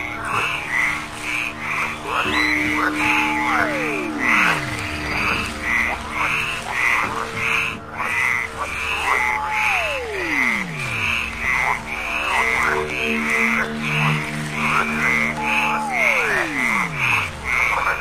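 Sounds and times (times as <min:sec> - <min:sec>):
frog-like croaking calls: 0:00.2 - 0:18.0
tone sliding down in pitch: 0:02.2 - 0:05.5, 0:09.4 - 0:11.0, 0:12.0 - 0:17.3
steady low hum: 0:09.9 - 0:18.0.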